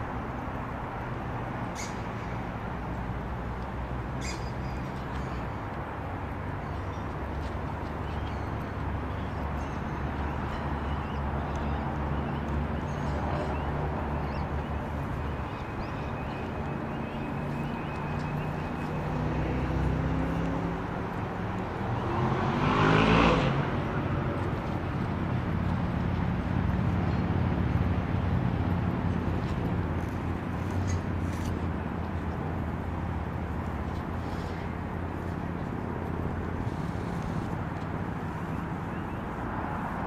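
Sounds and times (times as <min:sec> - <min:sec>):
low engine hum: 0:00.0 - 0:40.0
vehicle passing by: 0:12.1 - 0:40.0.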